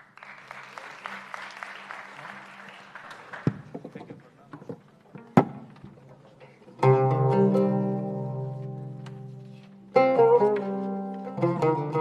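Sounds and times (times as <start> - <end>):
audience applause: 0.0 - 4.1.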